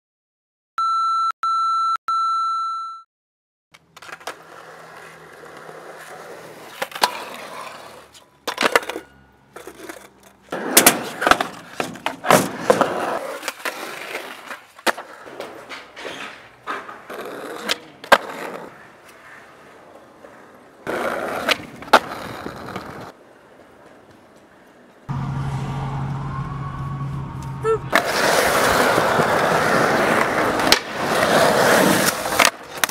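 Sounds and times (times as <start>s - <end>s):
skateboard wheels rolling on concrete: 3.7s - 25.2s, 26.7s - 32.9s
skateboard clacks: 20.2s - 24.8s, 27.9s - 32.9s.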